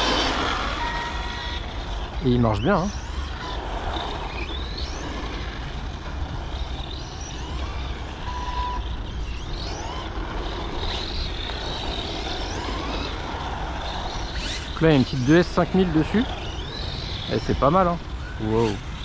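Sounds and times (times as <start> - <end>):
electric motor whine: 0.0 - 19.0
low wind rumble: 0.0 - 19.0
tyre noise on asphalt: 3.0 - 18.1.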